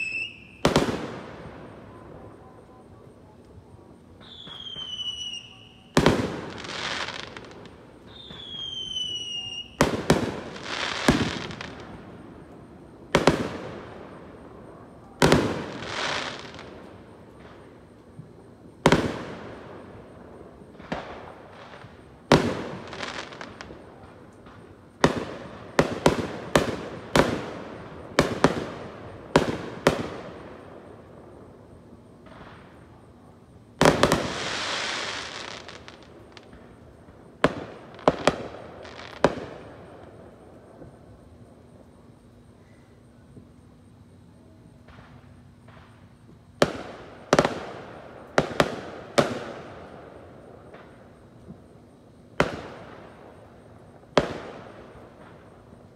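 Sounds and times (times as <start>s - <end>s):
falling firework whistle: 0.0s - 3.0s, 4.1s - 12.0s.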